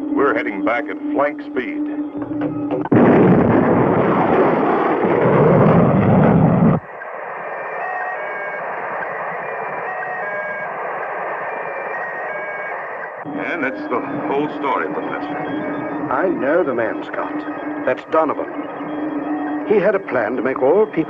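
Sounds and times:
rocket engine blast: 2.9s - 6.8s
electronic bleeps: 6.4s - 21.0s.

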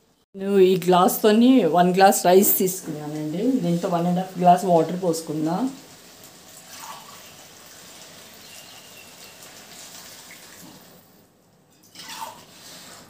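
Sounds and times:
water pouring splash: 6.5s - 11.1s.

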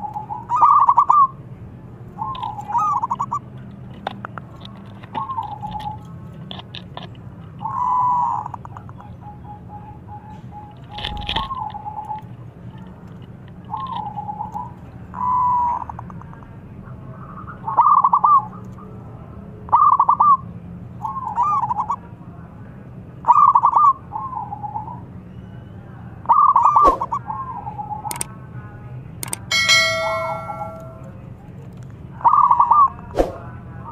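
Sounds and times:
dove cooing: 0.0s - 1.3s, 2.2s - 3.5s, 7.6s - 12.2s, 29.5s - 31.0s.

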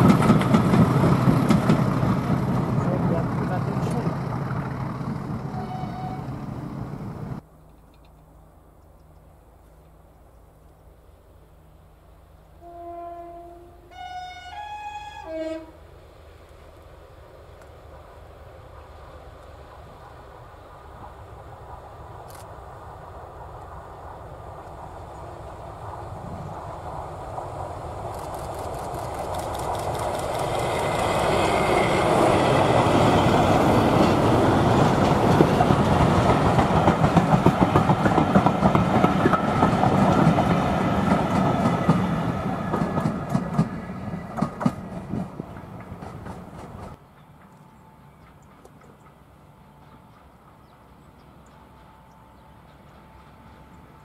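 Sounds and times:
diesel locomotive passing: 0.0s - 8.8s, 9.4s - 54.0s
wheels clicking over rail joints: 27.3s - 51.0s.

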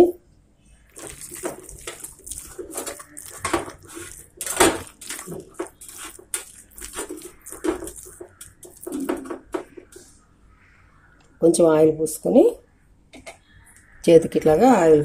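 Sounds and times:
hand mixing thick batter: 0.8s - 10.3s.

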